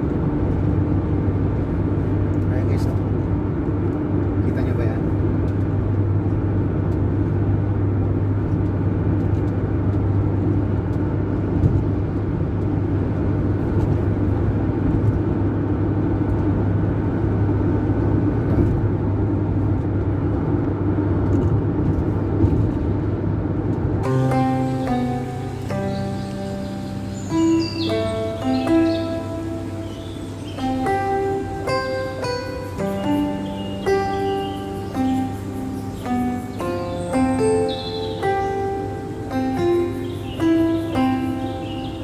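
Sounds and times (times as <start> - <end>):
constant low hum: 0.0 - 42.0
tyre and road noise: 0.0 - 42.0
vehicle engine drone: 0.0 - 42.0.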